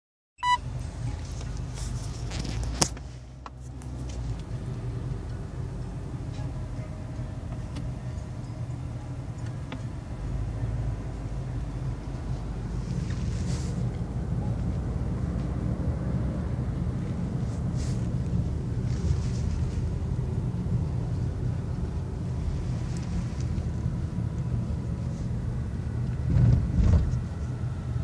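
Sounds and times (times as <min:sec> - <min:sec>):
short beep: 0:00.4 - 0:00.6
car engine and tyres rumbling: 0:00.4 - 0:28.0.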